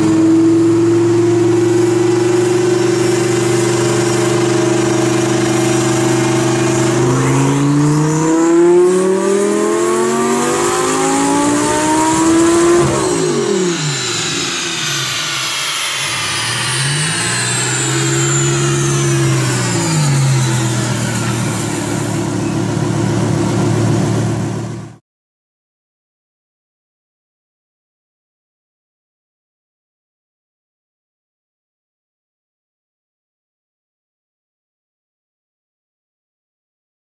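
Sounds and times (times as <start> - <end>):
sports car engine revving on dyno: 0.0 - 25.0.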